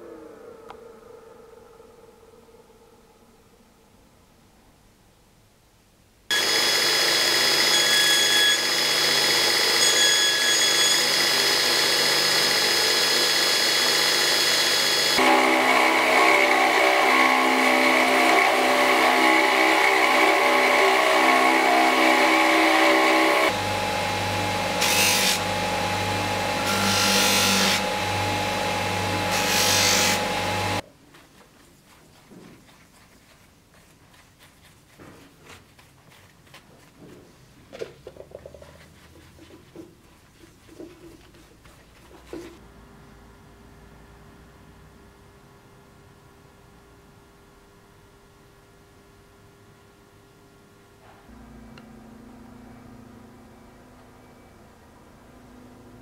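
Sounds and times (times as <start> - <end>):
belt grinder grinding metal: 6.3 - 30.8.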